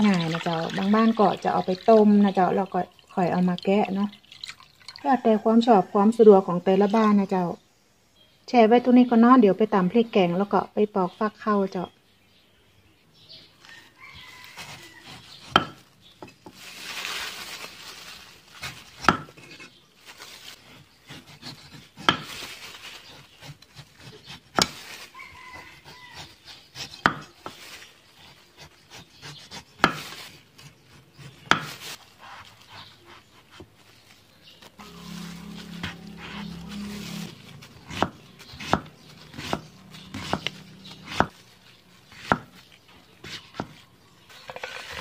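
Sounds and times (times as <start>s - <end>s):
knife slicing and scraping fruit: 13.7s - 17.1s, 18.5s - 45.0s.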